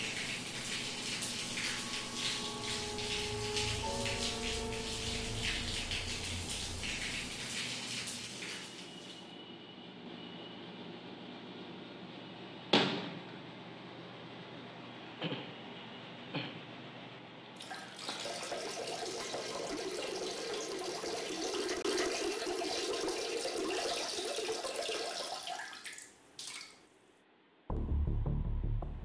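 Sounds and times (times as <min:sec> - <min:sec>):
water splashing into basin: 0:17.6 - 0:26.8.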